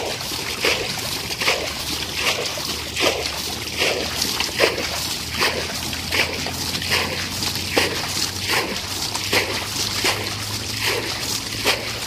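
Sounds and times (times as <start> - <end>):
water splashing and sloshing: 0.0 - 12.0.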